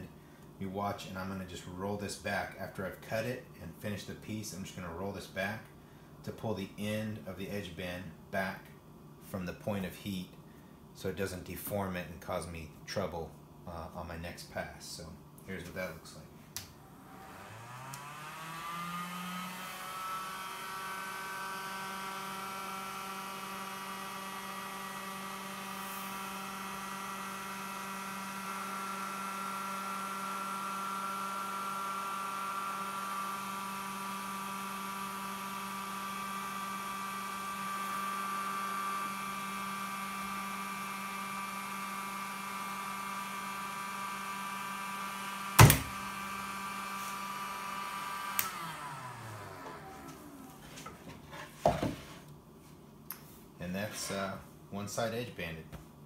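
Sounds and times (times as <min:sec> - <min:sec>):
edge bander motor whine: 0:16.7 - 0:52.0
sharp snap: 0:48.4 - 0:48.6.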